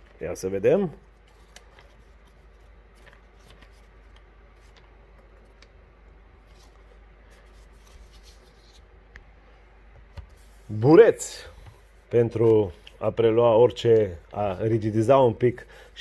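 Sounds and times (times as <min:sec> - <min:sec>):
packaging rustling: 0:01.0 - 0:05.8.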